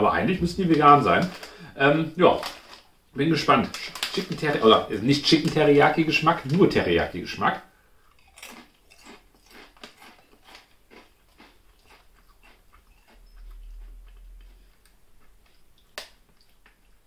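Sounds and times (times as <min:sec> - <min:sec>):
low rumble: 0:00.0 - 0:01.4, 0:13.2 - 0:15.2
potato chip crunching: 0:00.5 - 0:06.9, 0:08.1 - 0:16.9.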